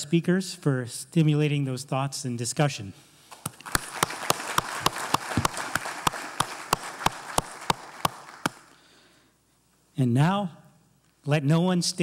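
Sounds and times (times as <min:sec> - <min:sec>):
person clapping loudly nearby: 0:03.3 - 0:08.8
audience applauding: 0:03.4 - 0:08.8.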